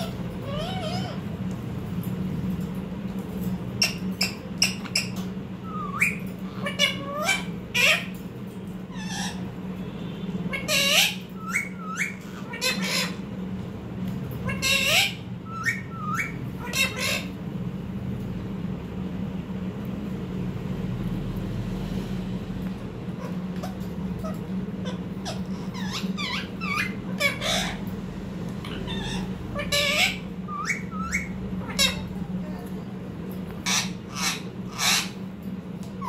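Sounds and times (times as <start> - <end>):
parakeet squawking: 0.0 - 1.4, 3.8 - 8.2, 8.8 - 9.8, 10.4 - 13.4, 14.3 - 17.5, 23.0 - 27.9, 28.6 - 32.4, 33.5 - 35.3
steady low hum: 0.0 - 36.0.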